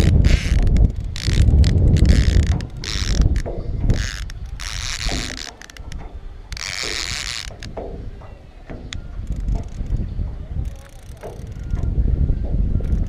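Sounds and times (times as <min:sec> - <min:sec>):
fishing reel ratchet clicking: 0:00.0 - 0:07.7, 0:10.6 - 0:11.9
wind rumble on microphone: 0:00.0 - 0:13.0.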